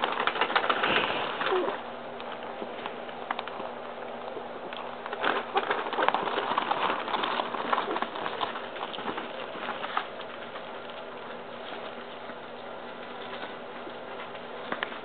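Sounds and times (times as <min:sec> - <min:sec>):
puppies rustling: 0:00.0 - 0:15.0
small irregular clicks: 0:00.0 - 0:15.0.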